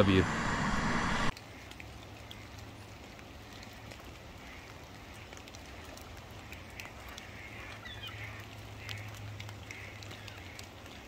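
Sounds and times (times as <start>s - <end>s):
light rain hissing: 0.0s - 11.0s
soft rain drop ticks: 1.3s - 11.0s
distant geese calling: 6.3s - 11.0s.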